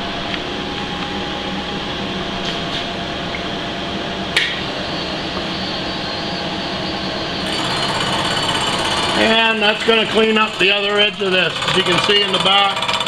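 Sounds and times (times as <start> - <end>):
milling machine motor hum and whine: 0.0 - 13.0
cutter cutting metal: 7.4 - 13.0.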